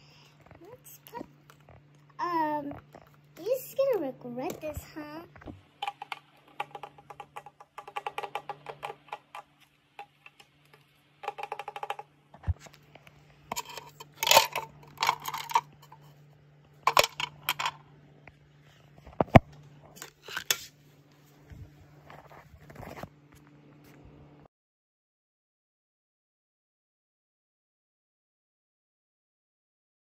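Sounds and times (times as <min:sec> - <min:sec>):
faint steady hum: 0:00.0 - 0:24.5
plastic toy pieces clicking and rattling: 0:05.8 - 0:12.1, 0:13.5 - 0:16.1, 0:16.8 - 0:17.8.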